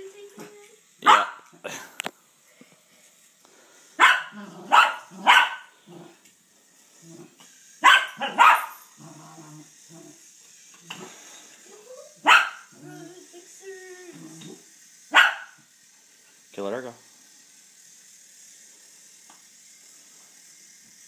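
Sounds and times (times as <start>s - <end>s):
small dog barking: 1.0s - 1.5s, 4.0s - 5.7s, 7.8s - 8.8s, 12.2s - 12.7s, 15.1s - 15.6s.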